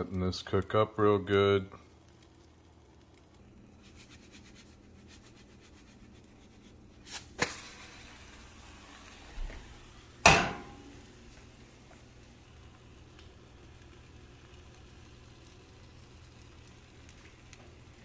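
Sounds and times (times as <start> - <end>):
omelet sizzling in frying pan: 0.0 - 18.0
frying pan knocks: 10.2 - 10.8
pan clanking on stove grate: 10.2 - 11.0.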